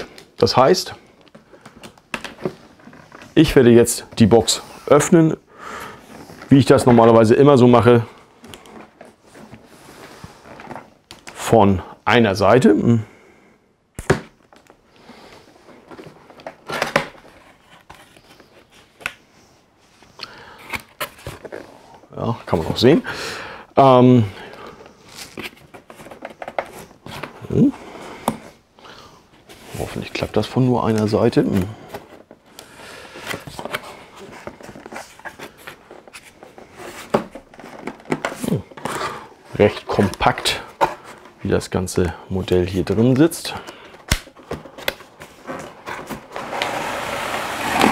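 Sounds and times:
cardboard scraping and rustling: 33.1s - 41.4s, 44.5s - 47.9s
cardboard box scraping and rustling: 45.2s - 47.9s.

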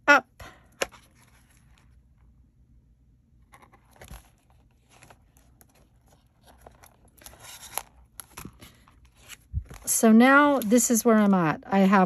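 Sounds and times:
paper rustling and scraping: 3.5s - 10.8s.

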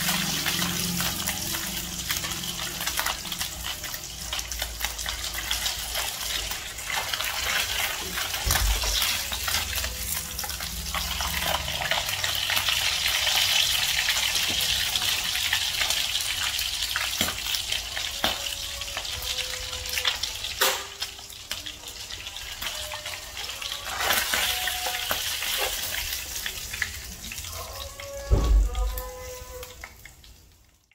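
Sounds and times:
fish sizzling in hot oil: 0.0s - 30.9s
loud knock on pan: 28.3s - 29.0s.

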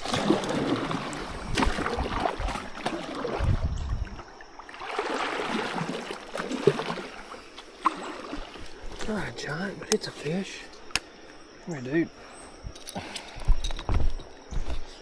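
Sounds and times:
water sloshing around kayak: 0.0s - 10.3s.

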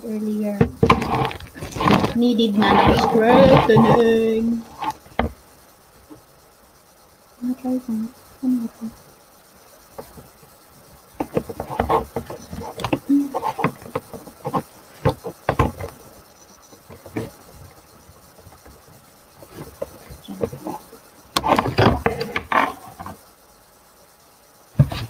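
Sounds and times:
plastic and cardboard rustling: 0.5s - 5.4s, 11.2s - 23.2s, 24.8s - 25.0s.

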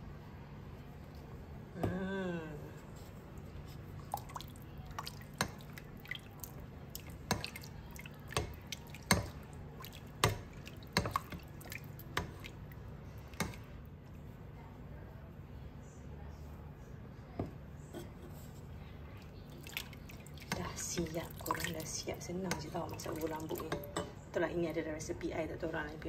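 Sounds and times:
faint low hum: 0.0s - 26.0s
liquid sloshing in a pot: 3.0s - 14.3s, 18.0s - 24.3s.

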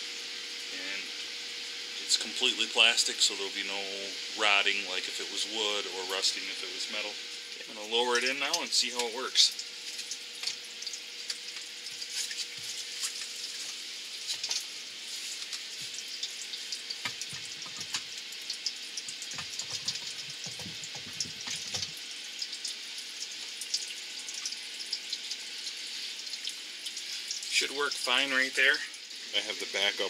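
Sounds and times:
water trickling and splashing: 7.3s - 30.0s
knocks and clunks of pump: 19.3s - 22.0s.

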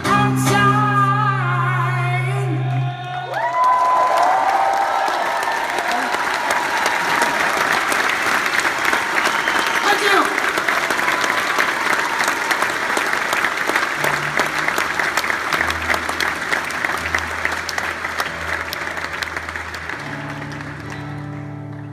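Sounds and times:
acoustic guitar: 0.0s - 3.0s, 14.0s - 21.9s
audience applauding: 2.5s - 21.9s.

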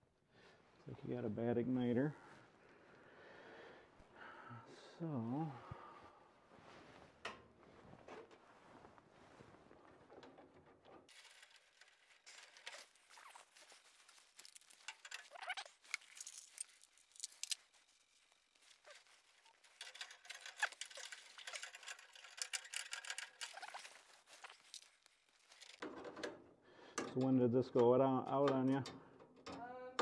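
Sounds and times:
hands handling wiring and parts: 9.4s - 26.4s.

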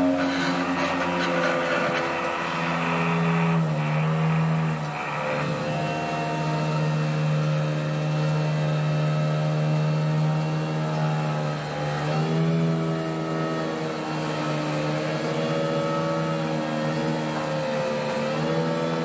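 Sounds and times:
earth auger drilling into ground: 0.0s - 6.9s
excavator diesel engines droning: 0.0s - 19.0s.

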